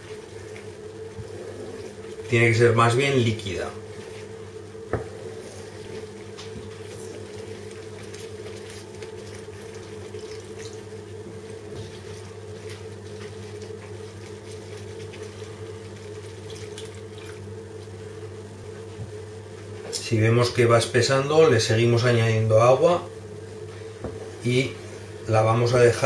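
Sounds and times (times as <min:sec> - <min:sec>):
wooden spoon stirring sauce: 0:00.0 - 0:19.8.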